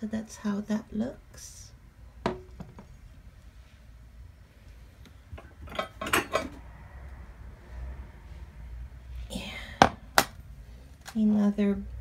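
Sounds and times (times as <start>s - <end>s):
dishes knocking on hard surface: 2.2s - 2.9s
clinks and knocks: 5.4s - 6.6s.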